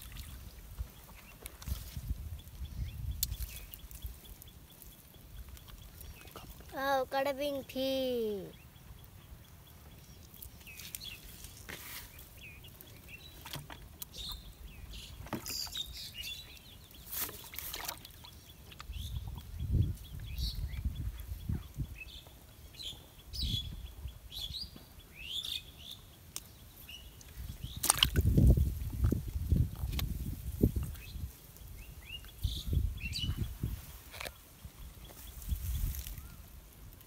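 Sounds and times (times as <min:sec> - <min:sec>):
birds chirping: 0:00.0 - 0:29.6, 0:30.7 - 0:36.6.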